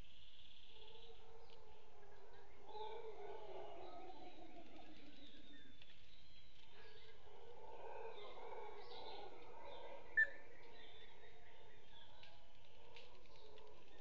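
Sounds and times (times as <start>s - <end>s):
howler monkeys howling: 0.8s - 5.6s, 6.8s - 13.7s
bird calls: 8.1s - 12.3s.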